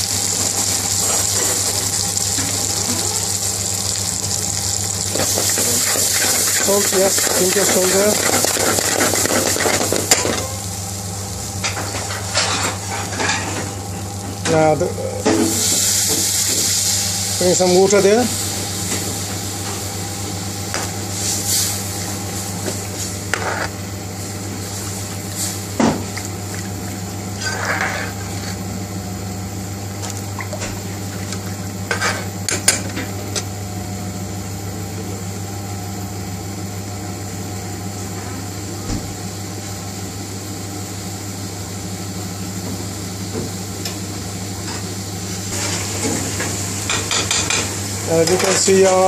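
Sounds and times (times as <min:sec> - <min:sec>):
metal spoon scraping a pan: 0:05.2 - 0:10.5, 0:23.3 - 0:23.7, 0:27.4 - 0:28.5.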